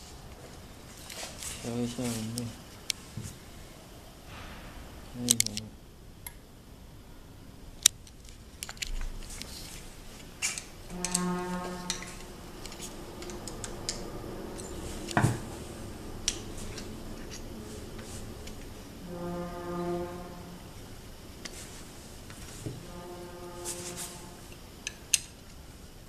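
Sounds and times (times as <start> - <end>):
held horn-like tone: 10.0 - 25.0.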